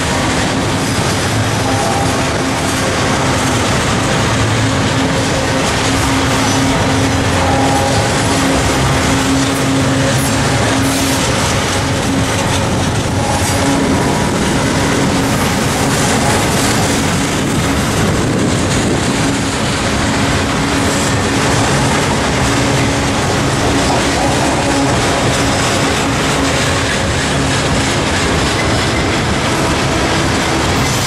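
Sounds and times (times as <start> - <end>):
low tone: 0.0 - 17.8
steel wheels rumbling on rail: 0.0 - 31.0.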